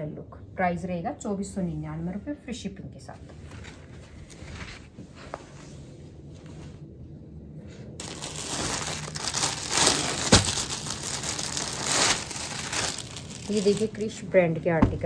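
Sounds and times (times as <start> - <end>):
plastic bag crinkling: 8.0 - 14.3.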